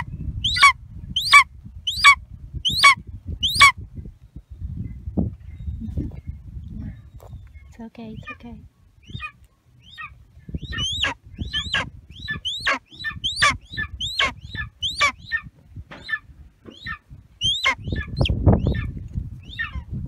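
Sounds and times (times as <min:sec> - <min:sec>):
low rumbling on microphone: 0:00.0 - 0:20.0
eagle yelping: 0:09.1 - 0:19.9.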